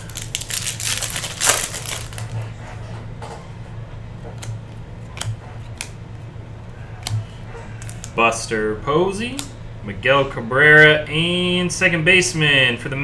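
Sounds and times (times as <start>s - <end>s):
foil wrapper crinkling: 0.0s - 2.5s
low steady hum: 0.0s - 13.0s.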